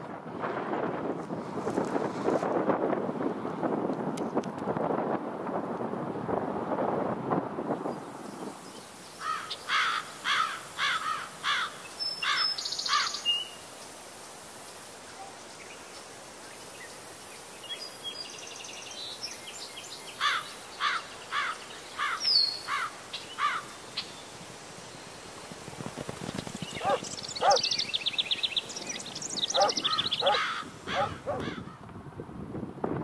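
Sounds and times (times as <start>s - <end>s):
insect drone: 7.8s - 31.0s
high bird calls: 8.6s - 13.6s, 19.9s - 24.4s, 26.6s - 31.6s
bird whistling song: 26.7s - 30.4s.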